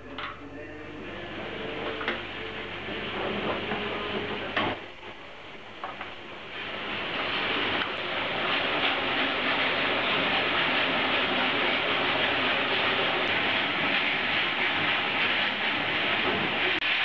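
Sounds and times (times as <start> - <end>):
warping mill running: 0.0 - 17.0.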